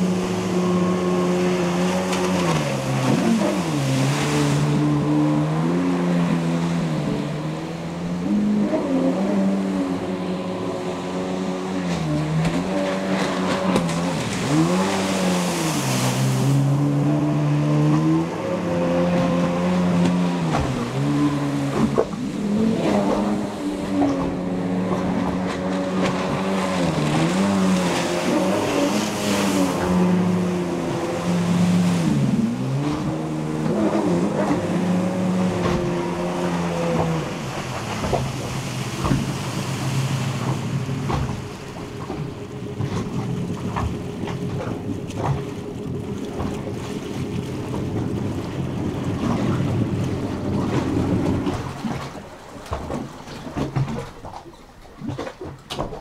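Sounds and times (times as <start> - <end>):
jet ski engine running: 0.0 - 56.0
water noise: 0.0 - 56.0.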